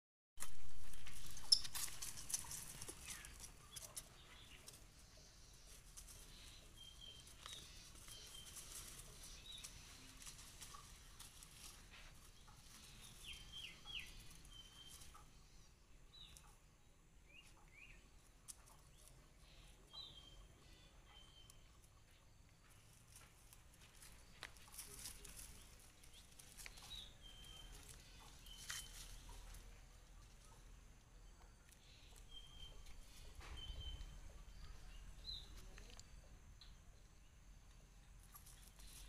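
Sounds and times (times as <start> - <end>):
rustling and clicking: 0.4 - 5.0.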